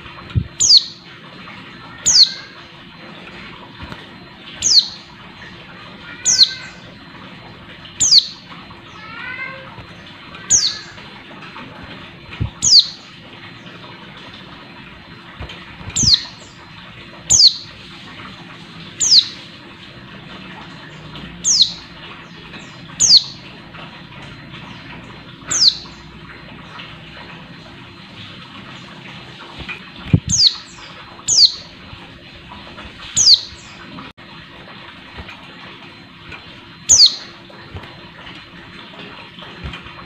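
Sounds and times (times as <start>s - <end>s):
bird giving sharp high calls: 4.6s - 5.0s, 6.1s - 6.8s, 8.0s - 8.4s, 10.5s - 11.0s, 12.6s - 13.0s, 17.3s - 17.6s, 25.5s - 25.9s, 36.9s - 37.2s.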